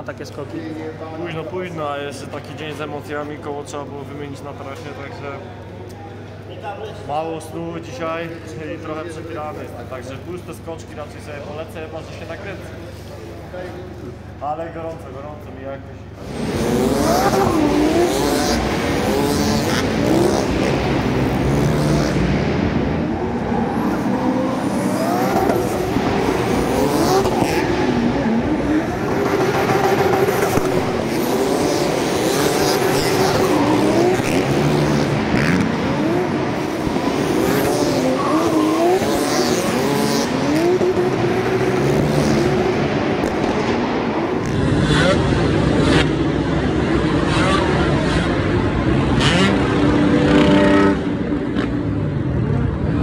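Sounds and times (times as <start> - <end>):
motor engines revving: 16.1 - 53.0.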